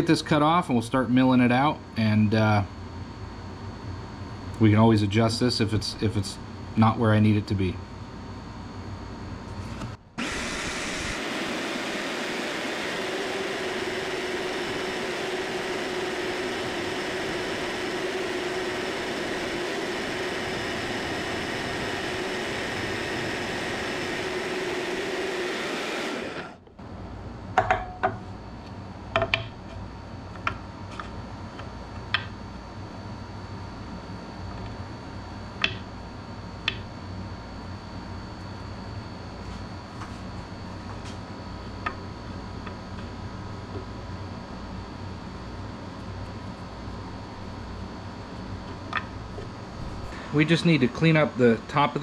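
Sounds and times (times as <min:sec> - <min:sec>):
power saw cutting metal: 0:10.2 - 0:26.6.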